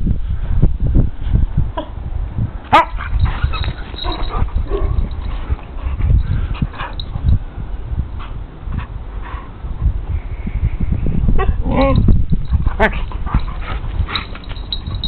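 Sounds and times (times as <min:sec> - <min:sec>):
dogs yelping and whining: 0:02.7 - 0:07.3, 0:11.4 - 0:15.0.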